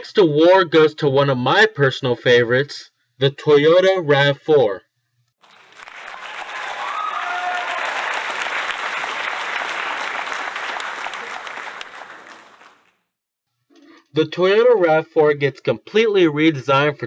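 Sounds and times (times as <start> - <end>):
crowd applauding: 5.4 - 12.9
crowd cheering: 5.4 - 12.9.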